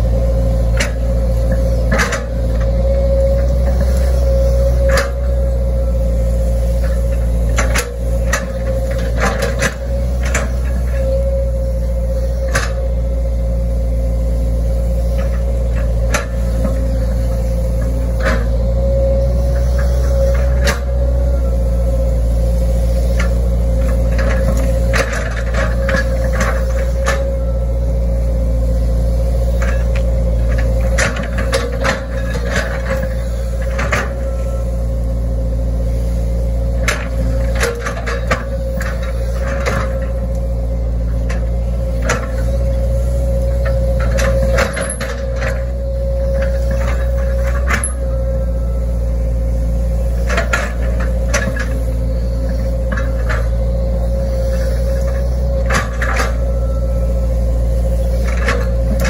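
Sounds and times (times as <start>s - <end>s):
excavator diesel engine running: 0.0s - 59.0s
steady whine: 0.0s - 59.0s.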